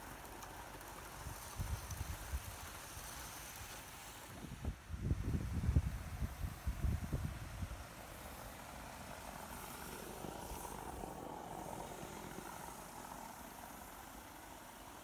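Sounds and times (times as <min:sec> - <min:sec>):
model steam locomotive hissing: 0:00.0 - 0:04.7, 0:05.4 - 0:15.0
wind rumble on microphone: 0:01.2 - 0:02.8, 0:04.3 - 0:08.0.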